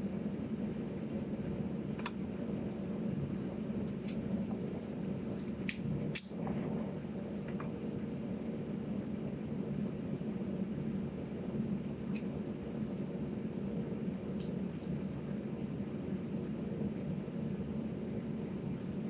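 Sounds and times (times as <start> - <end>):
low hum: 0.0 - 19.0
pomegranate clicks and crackles: 3.8 - 6.4.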